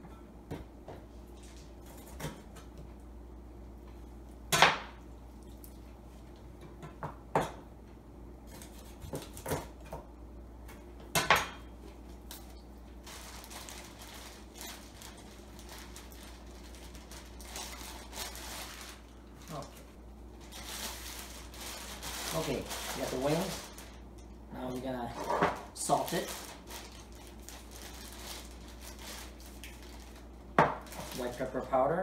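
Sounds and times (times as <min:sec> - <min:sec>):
plastic bag rustling: 0:12.4 - 0:31.7.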